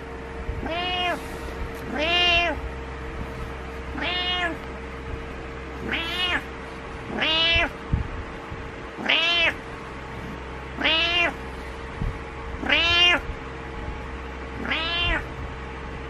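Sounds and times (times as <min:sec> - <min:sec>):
cat meowing: 0:00.6 - 0:01.2, 0:01.8 - 0:02.6, 0:03.9 - 0:04.6, 0:05.8 - 0:06.5, 0:07.1 - 0:07.8, 0:09.0 - 0:09.6, 0:10.8 - 0:11.4, 0:12.6 - 0:13.3, 0:14.6 - 0:15.4.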